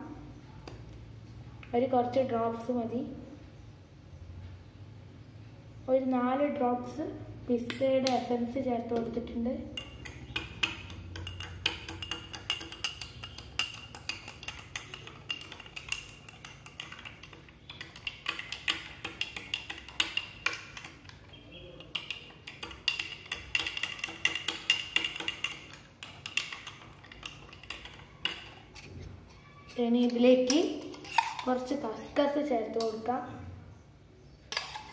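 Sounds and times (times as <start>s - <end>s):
spoon clinking against glass: 9.8s - 28.6s.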